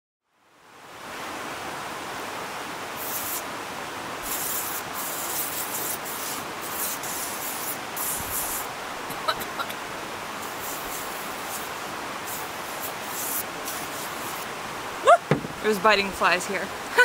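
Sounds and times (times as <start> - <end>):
river rushing: 0.4 - 17.0
aerosol can spraying: 3.0 - 3.5, 4.2 - 8.7, 10.4 - 14.4.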